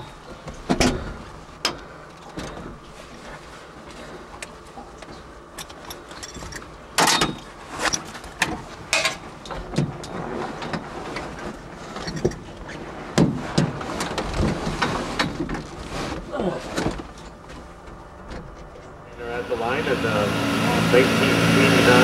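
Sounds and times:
knocks and rustles inside car: 13.1 - 18.8.

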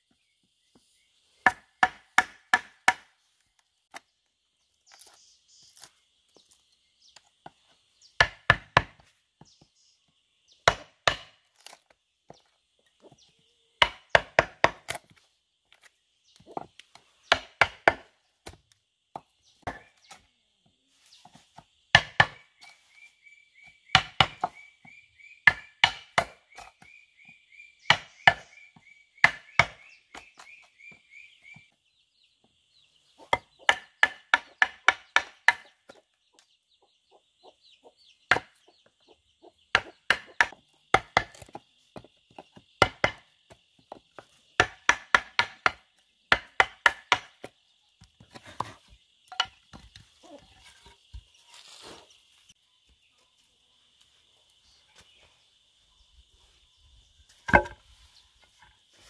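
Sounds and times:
mallet knocking on chisel: 57.5 - 57.8.

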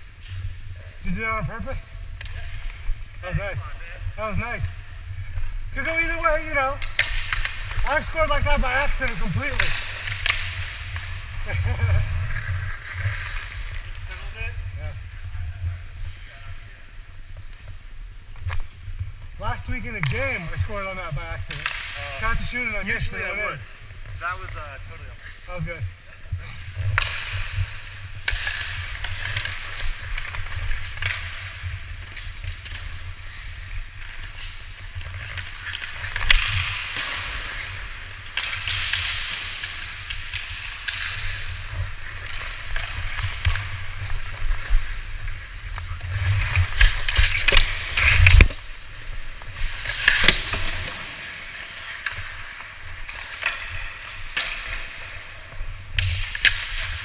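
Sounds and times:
skate blades scraping on ice: 5.8 - 14.3, 26.4 - 57.0.

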